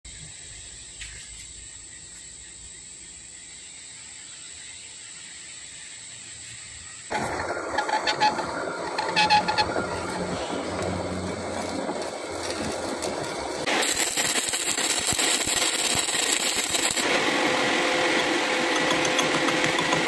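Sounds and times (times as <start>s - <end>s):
faint hiss with high whine: 0.1s - 20.0s
metal lathe cutting steel: 7.1s - 20.0s.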